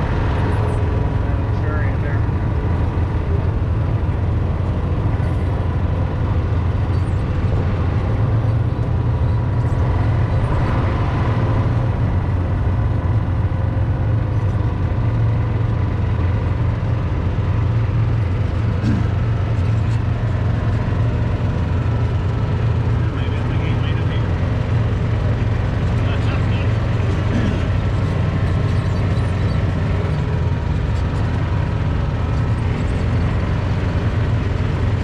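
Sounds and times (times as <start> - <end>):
small vehicle driving on grass: 0.0 - 35.0.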